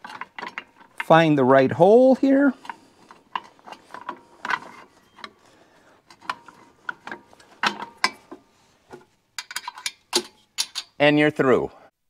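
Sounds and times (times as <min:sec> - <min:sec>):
metal pin clicking and knocking: 0:06.1 - 0:08.4, 0:09.4 - 0:11.0.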